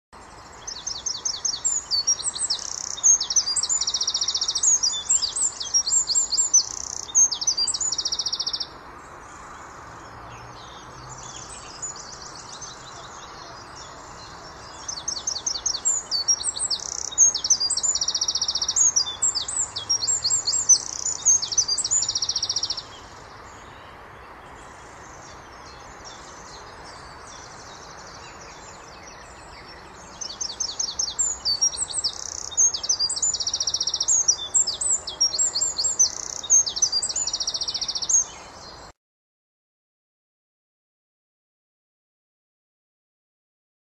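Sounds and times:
fainter bird song: 0:00.1 - 0:39.0
bird singing high trills: 0:00.3 - 0:08.7, 0:10.6 - 0:24.0, 0:25.7 - 0:38.6.

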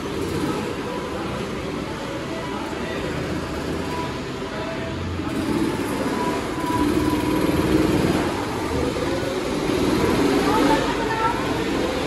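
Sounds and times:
go-kart engine: 0:00.0 - 0:12.0.

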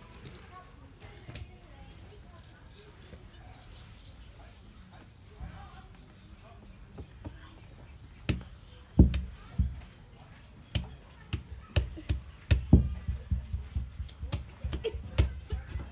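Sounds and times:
hands clapping and slapping: 0:10.8 - 0:15.9.

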